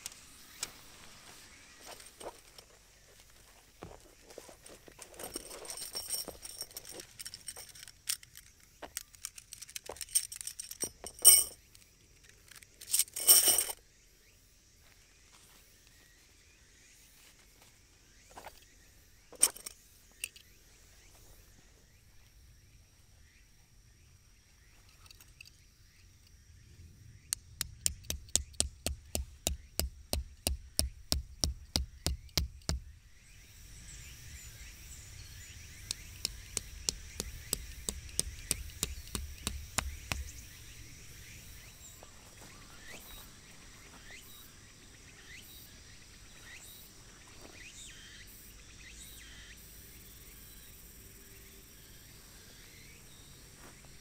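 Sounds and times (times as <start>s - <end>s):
metal tent pegs clinking: 4.6s - 11.7s, 12.5s - 13.8s, 19.4s - 20.4s
hammer tapping a stake: 27.4s - 32.9s, 35.8s - 40.6s.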